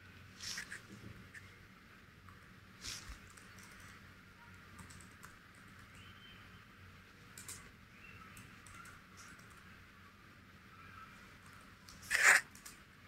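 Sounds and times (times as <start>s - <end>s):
computer keyboard typing: 3.0s - 4.0s, 4.7s - 6.1s, 7.3s - 7.7s, 8.3s - 9.6s, 11.4s - 12.8s.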